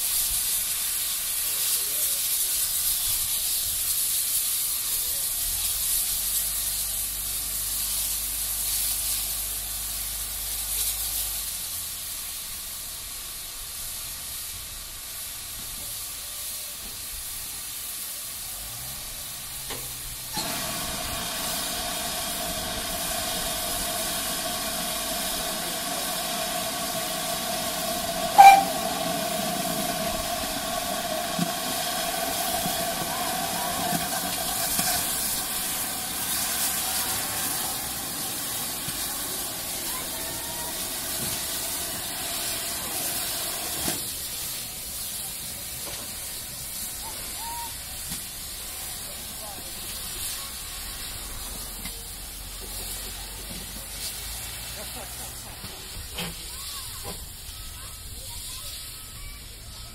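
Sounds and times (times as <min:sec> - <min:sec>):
steam locomotive hissing: 0:00.0 - 0:59.9
steam whistle blast: 0:20.3 - 0:35.7.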